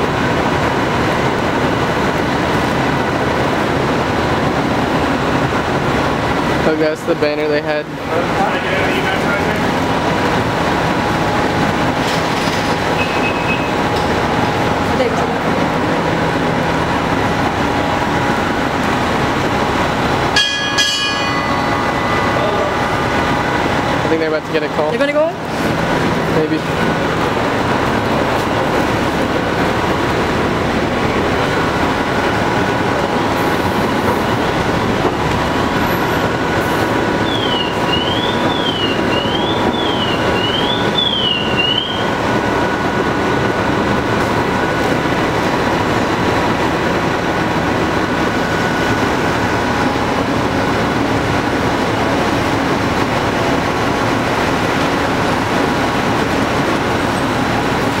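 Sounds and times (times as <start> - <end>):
street noise: 0.0 - 58.0
siren wailing: 37.0 - 42.8.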